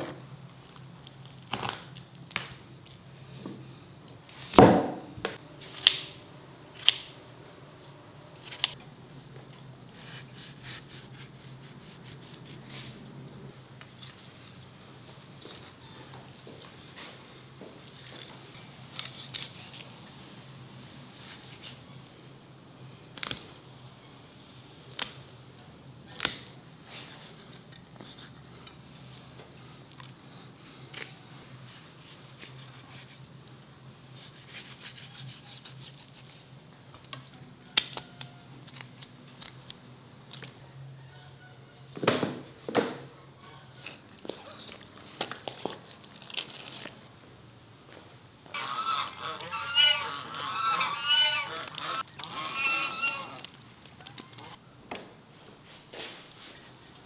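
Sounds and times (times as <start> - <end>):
knife slicing and scraping fish: 10.0 - 14.7, 31.6 - 33.3, 34.1 - 36.5.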